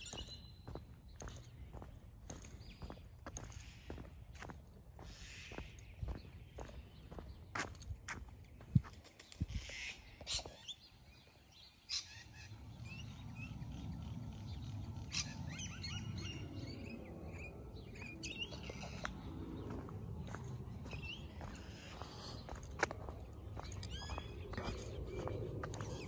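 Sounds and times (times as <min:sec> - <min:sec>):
birds chirping: 0:00.0 - 0:26.0
footsteps: 0:18.0 - 0:26.0.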